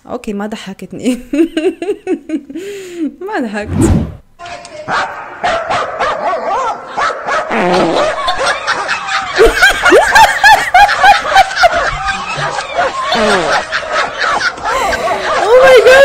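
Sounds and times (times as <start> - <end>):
woman laughing: 1.1 - 2.6, 7.9 - 16.0.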